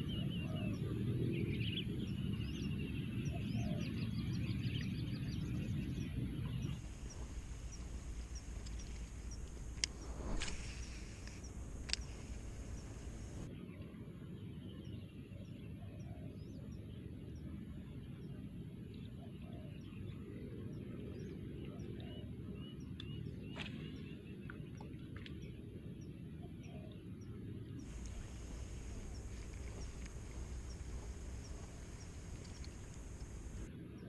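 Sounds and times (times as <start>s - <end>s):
small birds chirping: 0.0s - 13.5s, 25.2s - 34.0s
steady low rumble: 0.0s - 13.5s, 27.8s - 33.7s
sharp clicks: 6.8s - 13.5s, 27.9s - 33.7s.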